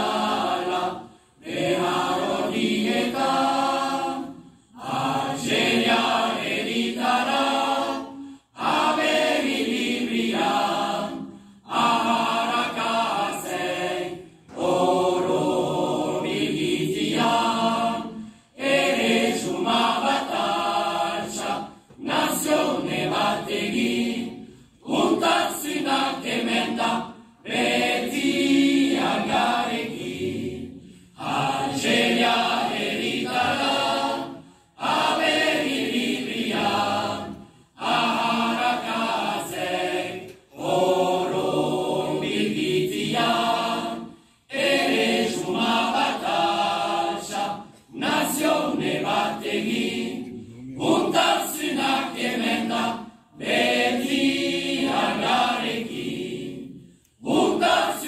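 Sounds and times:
choir singing unaccompanied: 0.0 - 58.0.

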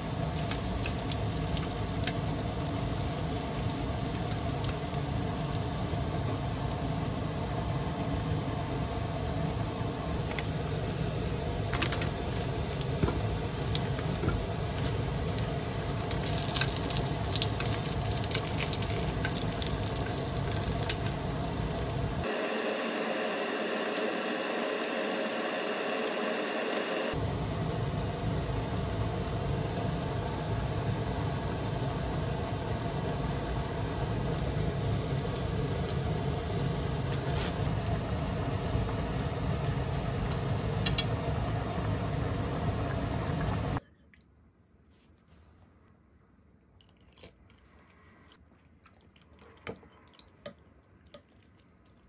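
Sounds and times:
soup bubbling in saucepan: 0.2 - 22.3.

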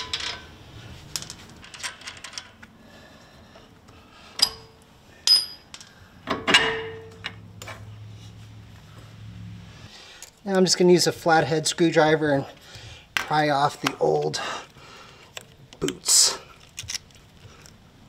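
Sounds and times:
sharp metal clanks: 4.4 - 7.3.

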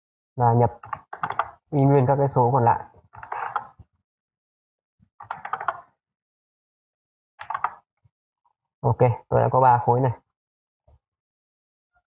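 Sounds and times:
typing on keyboard: 0.7 - 1.6, 5.2 - 5.9, 7.4 - 7.9.

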